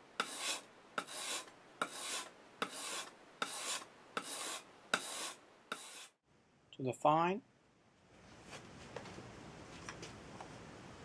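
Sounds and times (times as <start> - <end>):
blade rasping on whetstone: 0.2 - 6.2.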